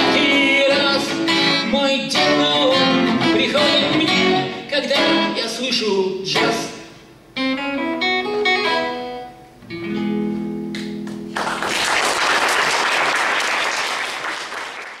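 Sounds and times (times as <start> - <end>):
acoustic guitar playing: 0.0 - 11.4
audience applause: 11.3 - 15.0.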